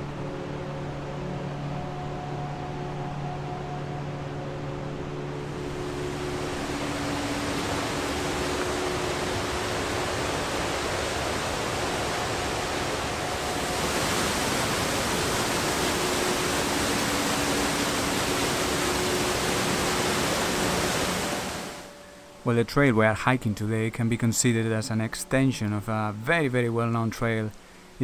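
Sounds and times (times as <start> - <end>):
waterfall rushing: 5.4 - 22.4.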